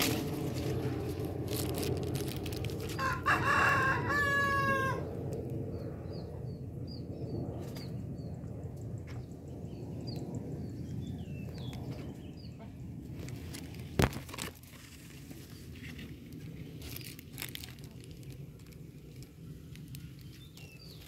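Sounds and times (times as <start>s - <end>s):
rooster crowing: 3.0s - 5.2s
small birds chirping: 9.2s - 12.8s, 15.4s - 21.0s.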